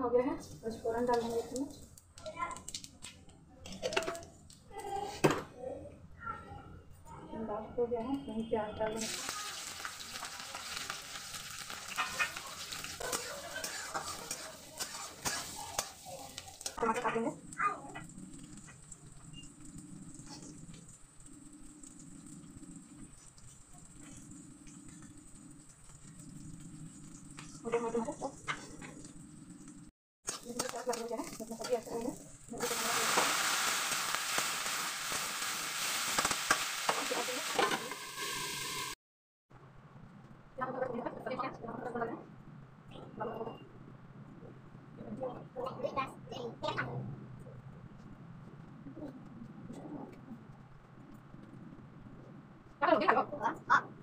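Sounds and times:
onions sizzling in hot oil: 0.6s - 2.0s, 9.0s - 39.0s
spatula scraping metal pan: 11.6s - 16.7s.

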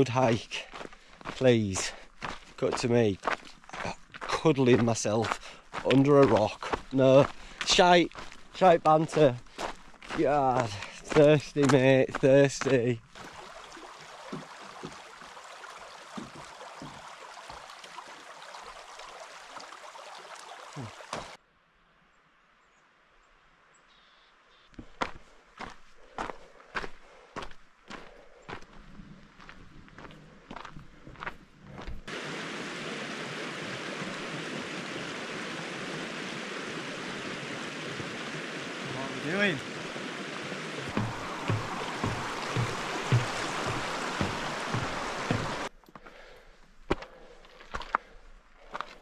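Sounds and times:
stream running over stones: 0.0s - 21.4s, 30.5s - 45.7s, 46.9s - 49.0s
footsteps knocking on wooden bridge: 2.8s - 15.4s, 16.1s - 17.7s, 40.8s - 45.7s.

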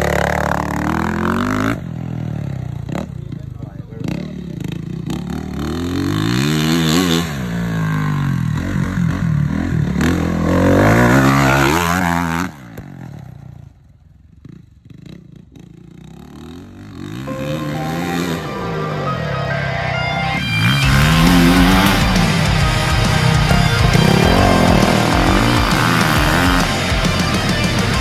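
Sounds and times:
dirt bike engine revving: 0.0s - 13.7s, 14.4s - 28.0s.

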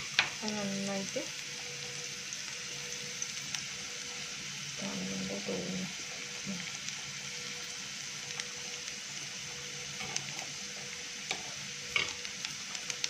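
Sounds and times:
onion sizzling in hot oil: 0.0s - 13.0s.

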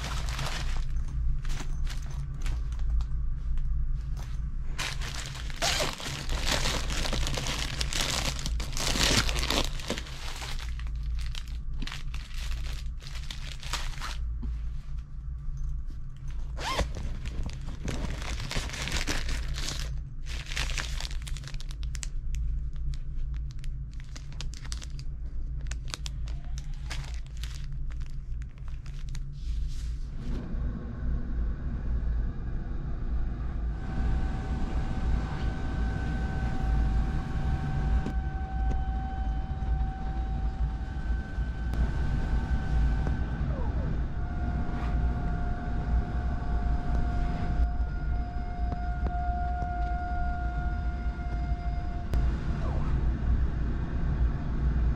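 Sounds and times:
plastic packaging crinkling: 0.0s - 3.0s, 4.7s - 14.2s, 16.2s - 29.3s
fabric rustling: 0.0s - 22.0s
steady low hum: 0.0s - 54.9s.

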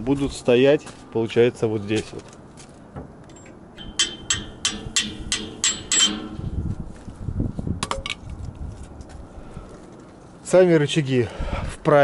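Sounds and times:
hammer striking metal: 3.4s - 6.6s.

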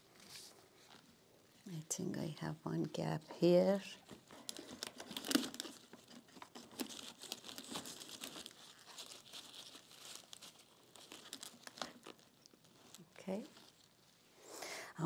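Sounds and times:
flowers crinkling and rustling: 3.4s - 14.1s.

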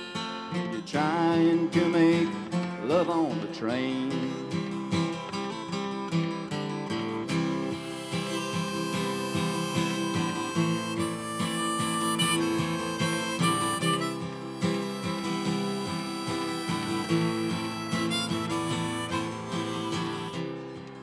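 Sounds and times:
harmonica melody: 0.0s - 0.8s, 5.0s - 21.0s
strummed acoustic guitar: 0.0s - 21.0s.

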